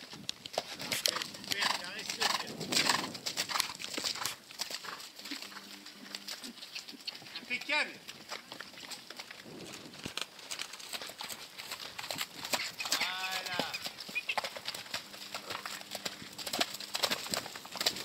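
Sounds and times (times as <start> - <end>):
hoofbeats on sand: 0.0 - 18.0
horse whinny: 12.6 - 14.4.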